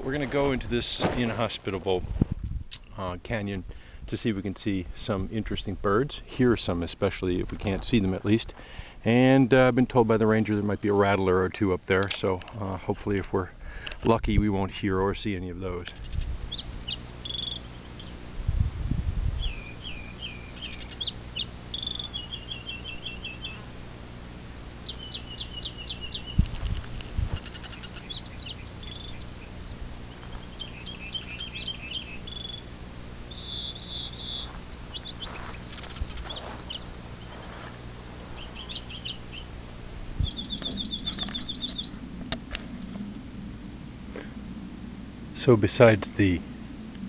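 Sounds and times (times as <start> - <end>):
bird singing: 15.8 - 18.3, 19.4 - 23.8, 24.6 - 42.1
jet airliner drone: 16.4 - 47.0.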